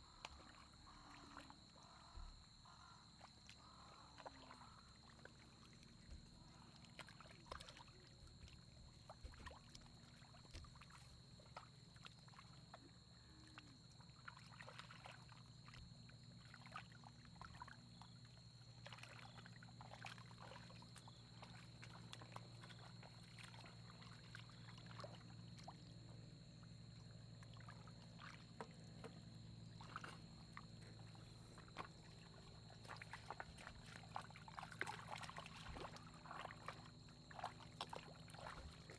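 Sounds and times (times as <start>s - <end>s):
hands splashing in muddy water: 29.7s - 38.9s.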